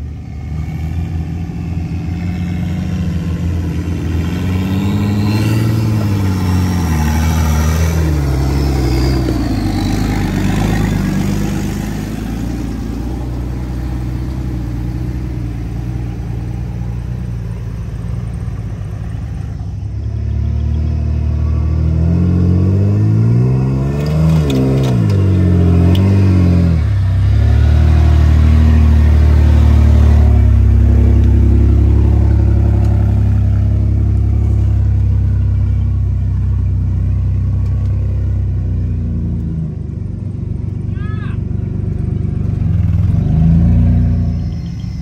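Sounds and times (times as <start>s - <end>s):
truck engine revving: 0.0s - 40.8s, 41.5s - 45.0s.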